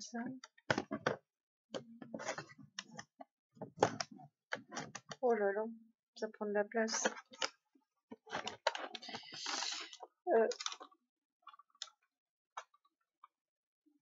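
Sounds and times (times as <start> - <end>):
makeup case trays clicking: 10.5 - 10.9.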